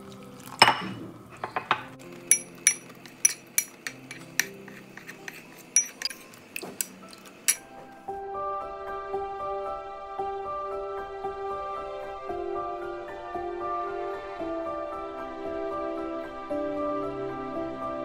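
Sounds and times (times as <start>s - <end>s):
soft background music: 0.0s - 18.0s
spoon clinking against bowl: 0.5s - 7.7s.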